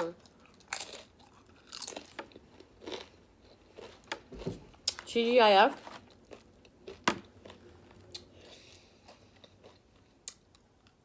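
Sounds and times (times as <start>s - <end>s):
person crunching chips: 0.1s - 5.1s, 6.0s - 8.3s.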